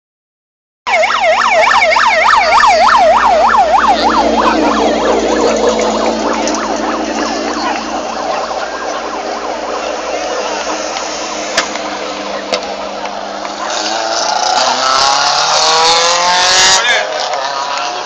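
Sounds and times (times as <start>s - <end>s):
siren in fast yelp: 0.9s - 17.1s
steady wash of noise: 2.7s - 16.3s.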